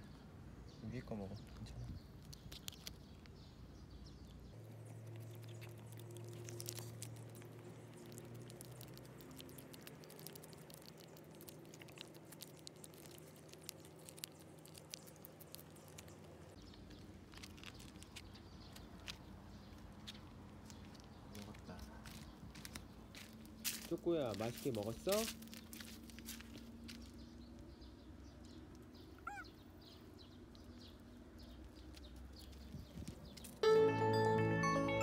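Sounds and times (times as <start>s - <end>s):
cat chewing food: 2.0s - 21.2s.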